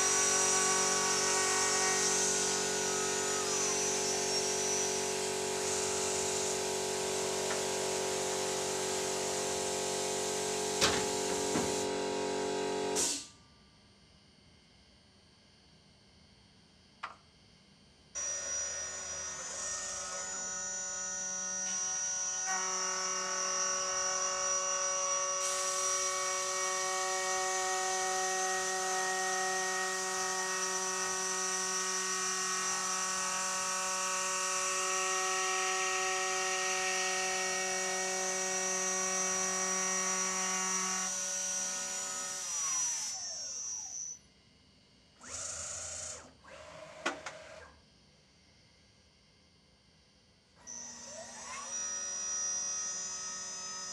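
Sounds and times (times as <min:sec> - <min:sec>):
cnc spindle whining: 0:00.0 - 0:13.1, 0:18.2 - 0:44.2, 0:50.6 - 0:53.9.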